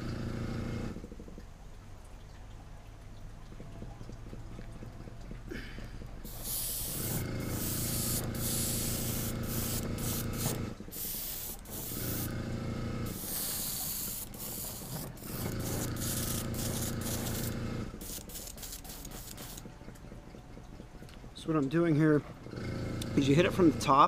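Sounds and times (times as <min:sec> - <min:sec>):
air compressor humming: 0:00.0 - 0:01.2, 0:05.2 - 0:24.0
airbrush spraying: 0:06.3 - 0:12.3, 0:13.1 - 0:19.6.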